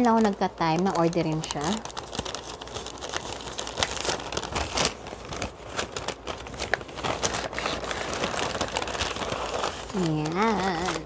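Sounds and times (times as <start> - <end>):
paper bag crinkling: 0.0 - 11.0.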